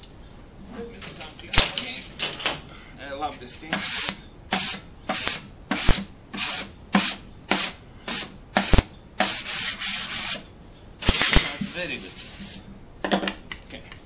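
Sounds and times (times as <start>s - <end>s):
hand rubbing gritty surface: 3.8s - 10.4s, 11.4s - 12.7s.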